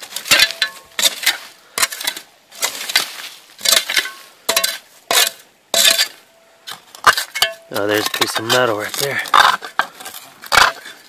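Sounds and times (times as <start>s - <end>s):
metal blade clinking on stones: 0.3s - 0.9s.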